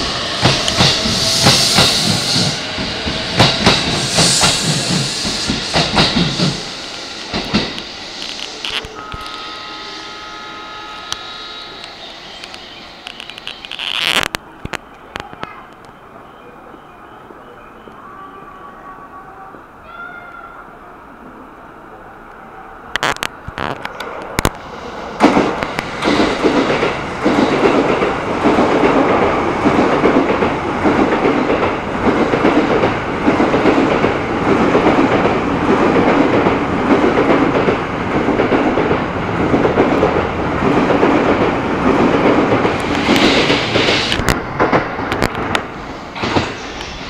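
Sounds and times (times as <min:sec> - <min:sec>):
train horn: 0:08.6 - 0:12.6
train wheels clattering over rail joints: 0:25.2 - 0:47.0.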